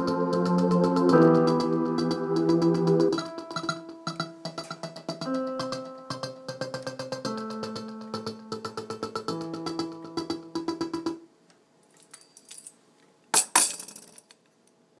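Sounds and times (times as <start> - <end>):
synthesizer music held notes: 0.0 - 11.4.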